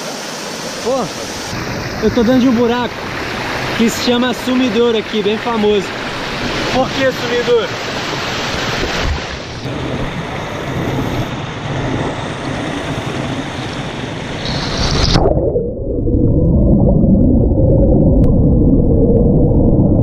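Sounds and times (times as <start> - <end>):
waterfall rushing: 0.0 - 11.5
underwater rumble of falling water: 0.0 - 20.0.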